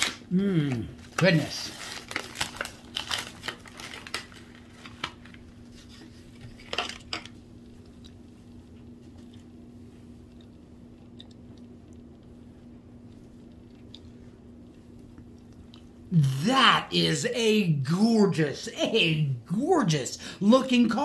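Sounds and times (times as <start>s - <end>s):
steady low hum: 0.0s - 21.0s
plastic packaging clicks and crackles: 1.0s - 5.5s.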